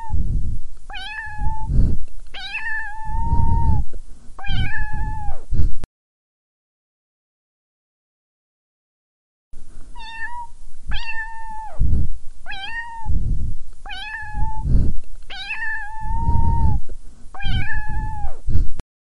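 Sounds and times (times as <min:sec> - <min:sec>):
low rumbling noise: 0:00.0 - 0:05.8, 0:09.6 - 0:18.8
cat meowing: 0:00.9 - 0:01.7, 0:02.4 - 0:03.8, 0:04.4 - 0:05.4, 0:10.0 - 0:11.8, 0:12.5 - 0:13.1, 0:13.9 - 0:14.7, 0:15.3 - 0:16.8, 0:17.4 - 0:18.4.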